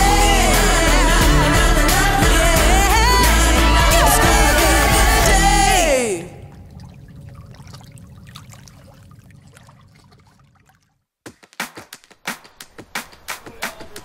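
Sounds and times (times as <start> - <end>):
pop song with singer: 0.0 - 6.5
outdoor ambience: 2.6 - 11.0
faint water sounds: 5.9 - 11.2.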